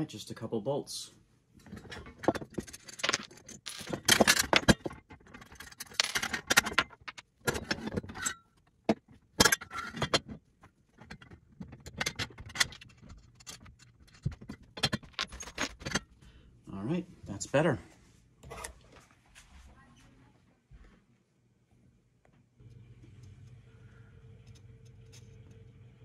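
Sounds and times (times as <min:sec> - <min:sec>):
metal parts clinking and rattling: 0:01.6 - 0:08.5, 0:09.4 - 0:10.4, 0:11.0 - 0:16.1.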